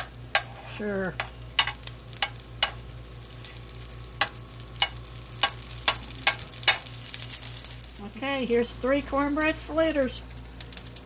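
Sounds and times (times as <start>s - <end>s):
spatula scraping and tapping pan: 0.0s - 2.8s, 4.2s - 6.9s
cornbread frying in oil: 0.0s - 11.0s.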